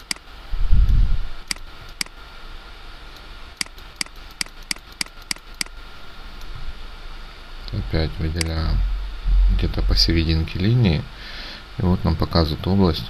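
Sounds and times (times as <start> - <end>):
computer mouse clicking: 0.0 - 0.3, 1.5 - 2.2, 3.6 - 5.8.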